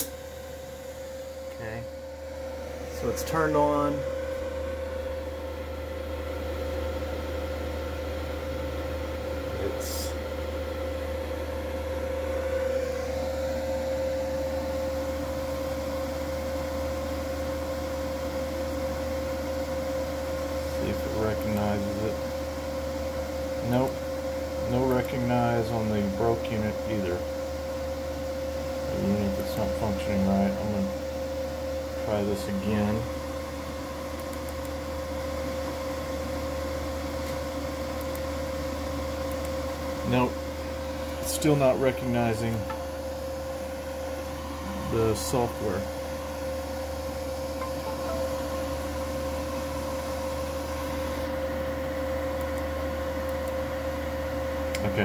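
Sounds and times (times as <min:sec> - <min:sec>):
high whine: 0:00.0 - 0:16.0, 0:28.8 - 0:52.6
fan noise: 0:00.0 - 0:55.0
inverter humming: 0:00.0 - 0:55.0
mid-pitched tone: 0:47.6 - 0:48.8.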